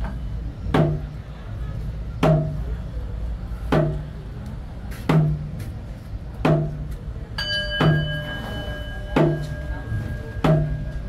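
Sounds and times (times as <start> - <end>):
bowl bell ringing: 7.4 - 11.0
frame drum beats: 10.4 - 10.9.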